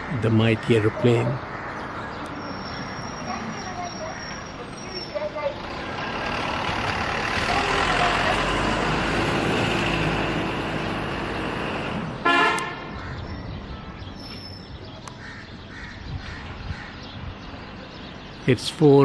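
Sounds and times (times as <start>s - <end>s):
passing vehicle rushing: 5.4s - 12.9s
vehicle horn toot: 12.2s - 12.9s.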